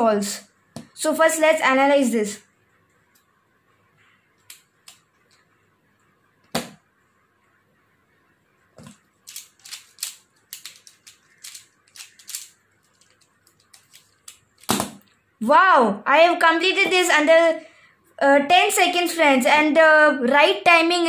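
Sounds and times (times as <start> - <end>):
plastic puzzle clicking: 8.8 - 14.8.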